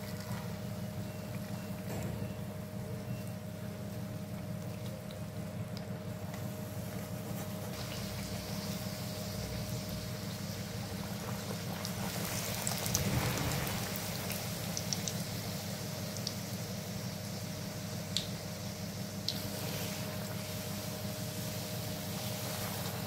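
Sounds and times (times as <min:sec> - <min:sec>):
hot oil sizzling: 0:07.4 - 0:23.0.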